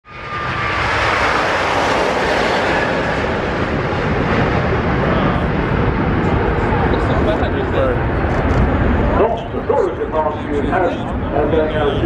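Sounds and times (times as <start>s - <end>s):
loud jet engine noise: 0.0s - 12.0s.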